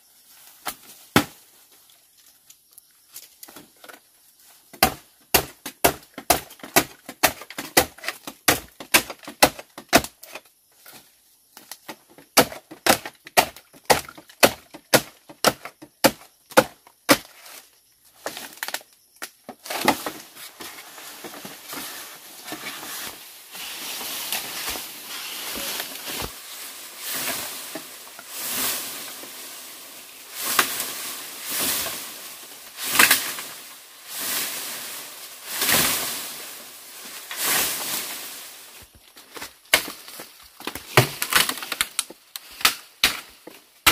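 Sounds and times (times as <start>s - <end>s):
bamboo leaves rustling: 0.0s - 5.6s, 17.2s - 43.9s
blade chopping bamboo: 4.7s - 10.4s, 12.4s - 17.5s, 42.6s - 43.9s.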